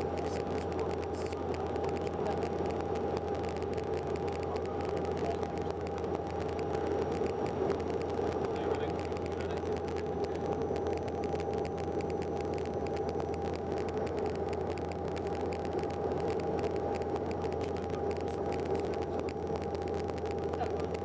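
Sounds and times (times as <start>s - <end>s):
turboprop cabin drone: 0.0s - 21.0s.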